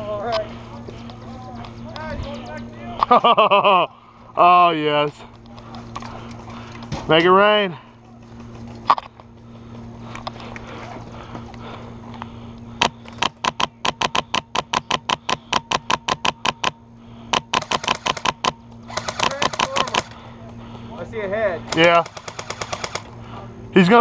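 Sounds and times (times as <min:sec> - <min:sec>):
airsoft gun firing bursts: 0:12.8 - 0:20.2, 0:21.7 - 0:23.1.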